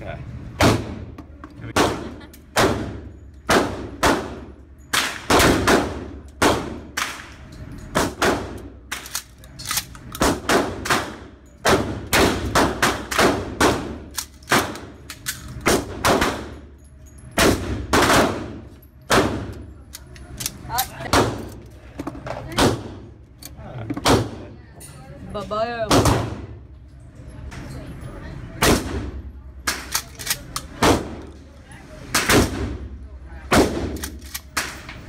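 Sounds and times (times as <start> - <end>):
echoing gunshots indoors: 0.6 - 16.6, 17.3 - 19.7, 25.9 - 26.6, 28.6 - 31.3, 32.1 - 32.9, 33.5 - 34.9.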